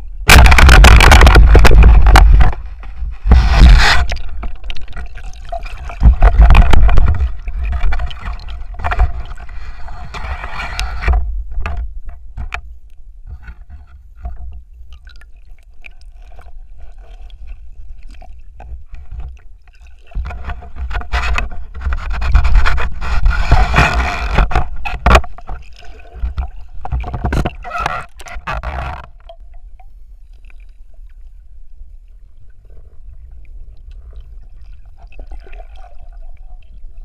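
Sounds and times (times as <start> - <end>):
muffled underwater water churning: 0.0 - 37.0
knocks and clicks from speargun: 0.3 - 4.6, 10.1 - 12.7, 20.2 - 25.6.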